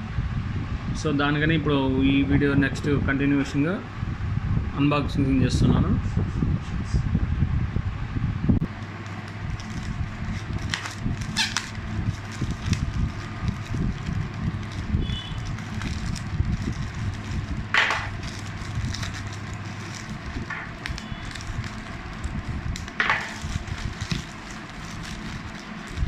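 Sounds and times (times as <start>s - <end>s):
plastic mailer bag crinkling: 8.6s - 26.0s
plastic tearing: 8.6s - 26.0s.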